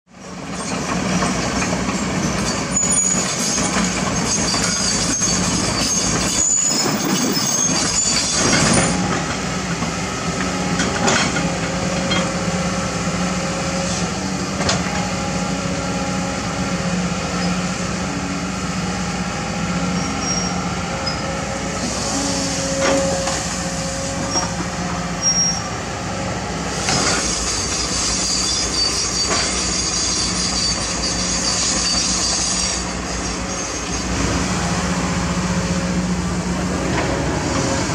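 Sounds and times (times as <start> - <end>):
excavator engine running: 0.2 - 37.9
high metallic squeals: 2.0 - 9.1, 19.9 - 24.6, 25.2 - 25.8, 27.1 - 34.2.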